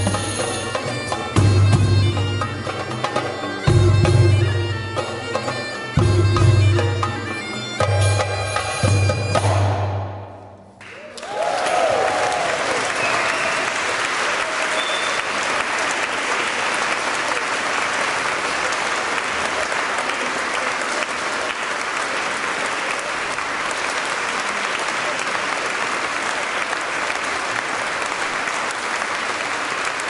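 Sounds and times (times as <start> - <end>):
audience applauding: 10.8 - 30.0.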